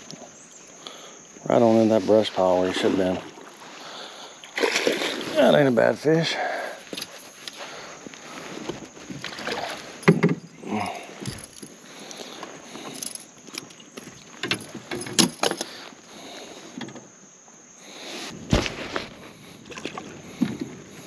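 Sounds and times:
fishing gear knocking and rattling: 0:08.6 - 0:15.8.

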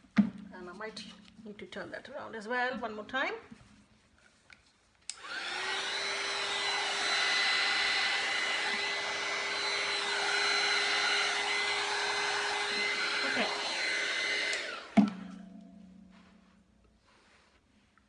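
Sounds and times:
hair dryer blowing: 0:05.1 - 0:15.5.

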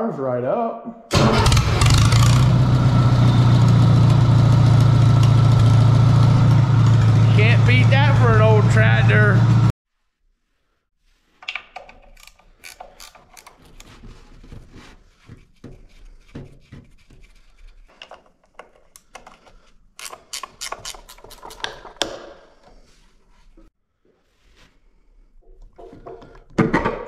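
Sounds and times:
ratchet wrench clicking: 0:12.1 - 0:13.5, 0:20.0 - 0:21.6.

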